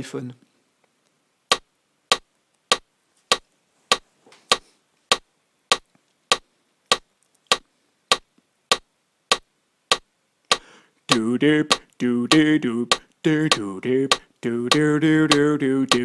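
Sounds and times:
metronome clicking: 5.1s - 16.0s.

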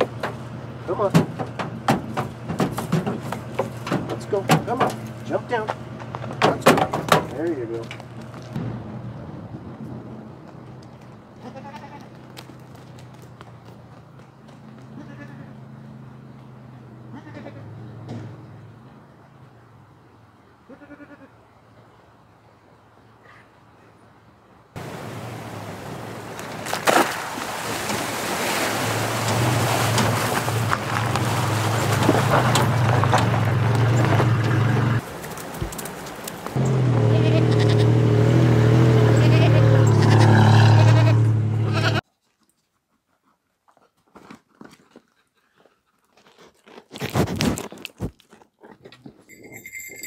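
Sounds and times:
truck engine hum: 0.0s - 20.6s, 24.8s - 42.0s
water splashing under tyres: 24.8s - 36.7s
goat nibbling and crunching: 42.0s - 49.6s.

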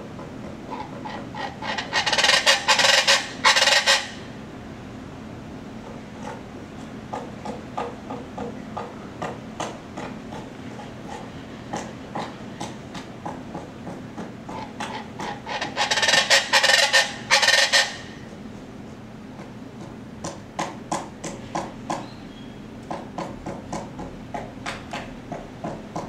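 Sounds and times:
raspy bird calls: 0.7s - 4.3s, 14.9s - 18.2s.

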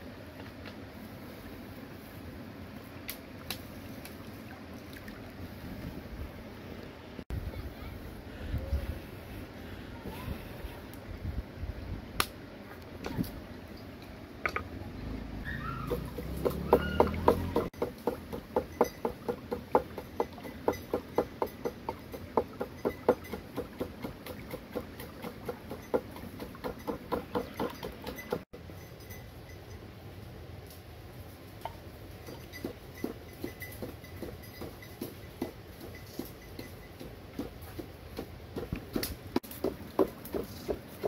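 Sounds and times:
wooden pestle pounding in mortar: 15.9s - 28.4s.

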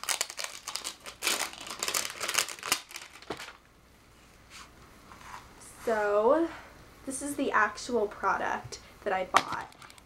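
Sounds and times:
packaging crinkling and tearing: 0.0s - 3.6s.

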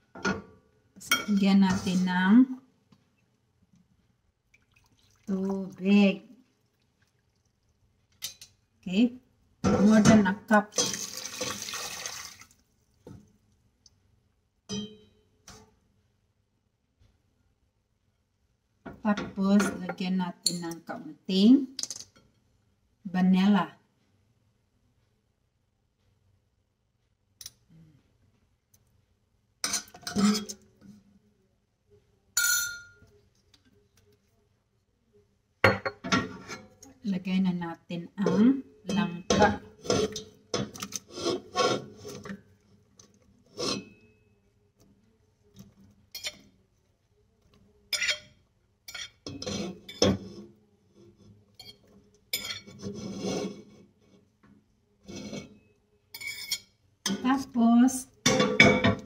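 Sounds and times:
metal spoon clinking on pot: 14.7s - 15.2s, 29.6s - 30.6s, 32.4s - 33.0s, 46.1s - 46.5s, 47.9s - 50.2s, 51.6s - 52.7s, 56.1s - 57.2s
fork scraping on ceramic plate: 39.8s - 40.3s, 41.0s - 42.3s, 43.5s - 44.1s, 48.9s - 50.4s, 51.0s - 53.8s, 55.0s - 55.6s.

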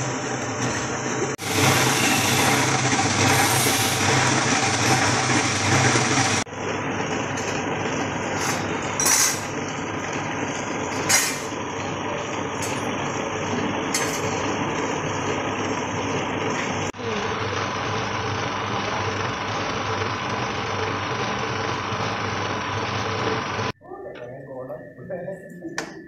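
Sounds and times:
machine motor hum: 0.0s - 9.0s.

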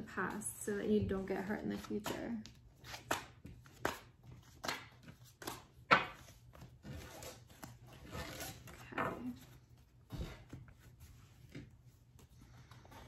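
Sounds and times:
cards sliding and tapping: 1.8s - 7.8s.

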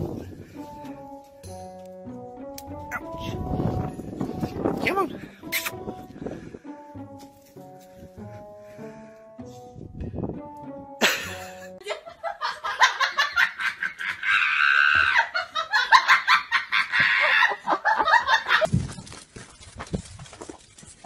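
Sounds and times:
brief music: 0.9s - 11.8s
person laughing hard: 11.0s - 18.7s.

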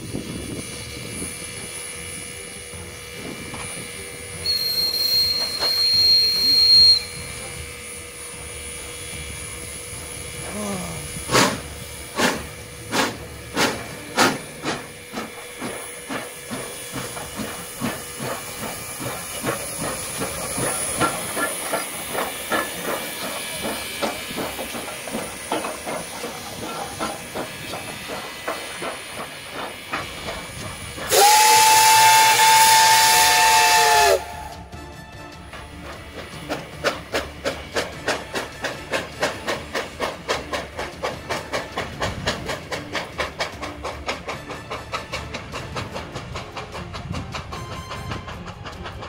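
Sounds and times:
steam hiss: 0.0s - 34.6s
steam locomotive exhaust chuffs: 0.0s - 49.0s
steam whistle blast: 4.4s - 7.5s, 31.1s - 34.7s.

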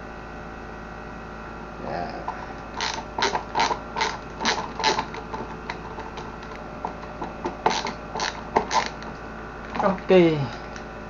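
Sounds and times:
steady low hum: 0.0s - 11.0s
creaking scraping hand strokes: 2.2s - 10.1s.

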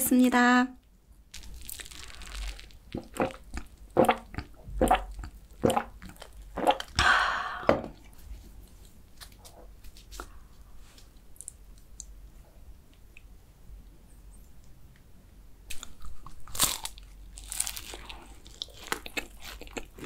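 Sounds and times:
pastry crackling and rustling: 1.3s - 3.4s
person gulping drink: 1.4s - 8.2s.

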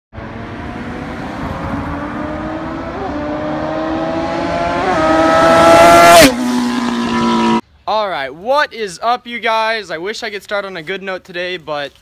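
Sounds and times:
motorcycle engine accelerating: 0.1s - 7.6s.

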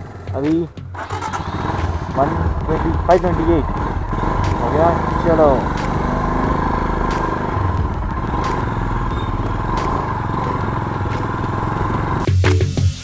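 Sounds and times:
motorcycle engine idling: 0.0s - 12.3s.

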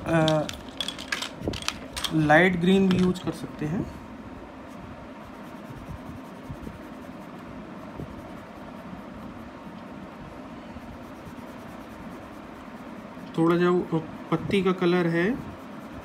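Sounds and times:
pencil scratching on paper: 5.2s - 9.9s, 10.7s - 13.9s.

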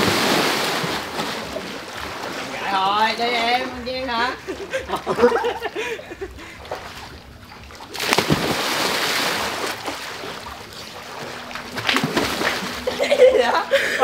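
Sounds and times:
big splash into pool: 0.0s - 2.3s, 7.9s - 10.4s, 11.7s - 12.9s
water sloshing and churning: 0.0s - 14.0s.

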